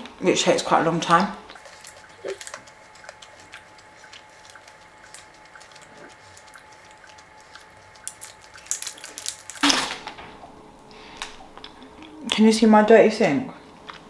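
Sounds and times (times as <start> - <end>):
wet mouth clicks: 1.4 - 9.6, 11.2 - 12.4
chewing with mouth closed: 1.4 - 9.7, 10.4 - 12.4.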